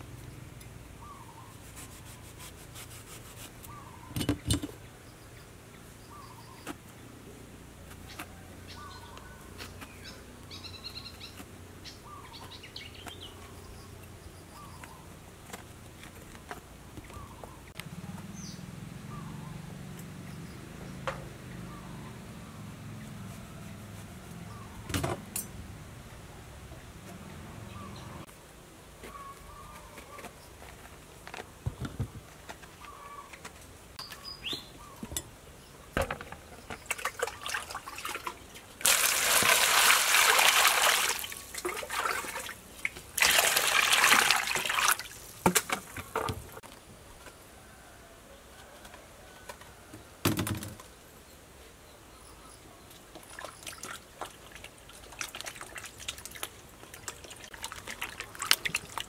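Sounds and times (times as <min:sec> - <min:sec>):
water splashes: 0:36.8 - 0:46.6, 0:53.0 - 0:59.0
water pouring into metal basin: 0:37.4 - 0:42.6, 0:43.2 - 0:45.3.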